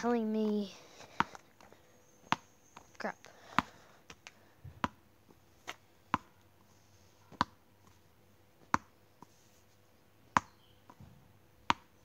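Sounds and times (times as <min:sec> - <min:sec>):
ball bouncing on hard surface: 0:02.2 - 0:02.9, 0:04.7 - 0:05.0, 0:08.7 - 0:08.9, 0:10.3 - 0:11.9.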